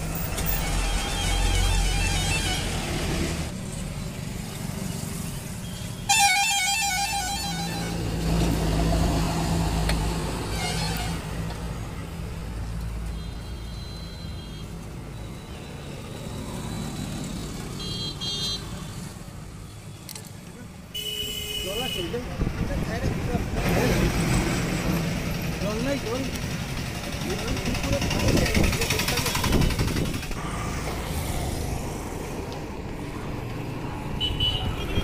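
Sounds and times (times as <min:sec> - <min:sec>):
road traffic engines rumbling: 0:00.0 - 0:35.0
vehicle horn: 0:00.5 - 0:02.8, 0:05.7 - 0:08.1, 0:17.8 - 0:18.7, 0:21.0 - 0:22.1, 0:34.2 - 0:35.0.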